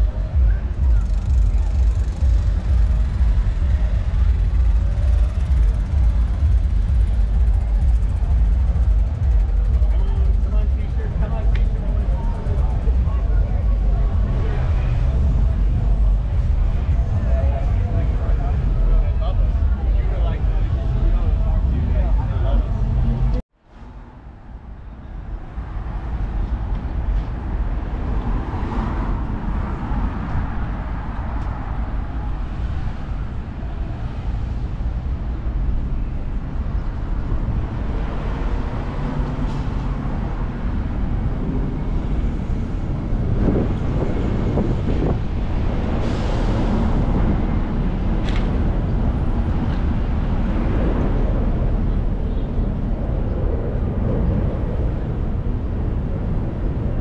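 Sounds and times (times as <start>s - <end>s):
road traffic: 0.0s - 57.0s.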